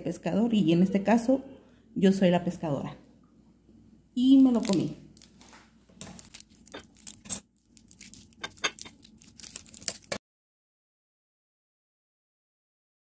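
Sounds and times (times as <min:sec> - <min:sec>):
plastic wrapper crinkling: 0:04.4 - 0:10.2.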